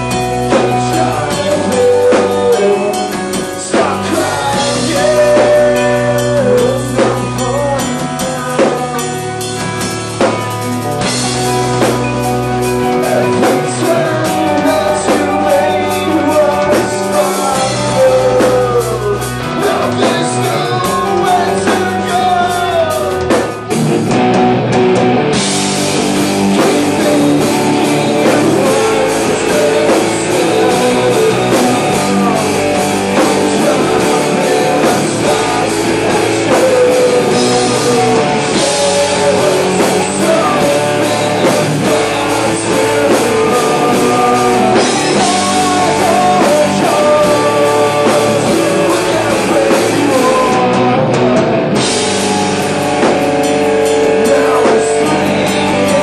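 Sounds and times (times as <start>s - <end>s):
person singing: 0.0s - 23.7s, 25.8s - 56.0s
live rock band playing: 0.0s - 56.0s.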